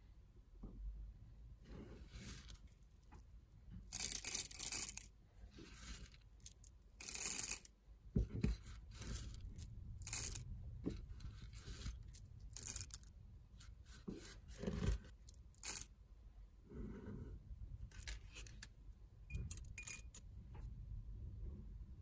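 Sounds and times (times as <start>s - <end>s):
coffee beans rattling into grinder: 5.9s - 7.7s, 10.0s - 10.4s, 11.5s - 13.0s, 15.6s - 15.8s.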